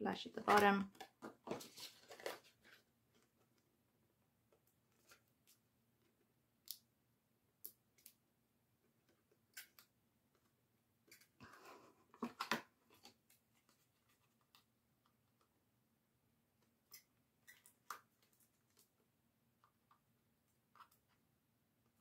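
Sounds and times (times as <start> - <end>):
paper rustle: 1.2 - 3.3.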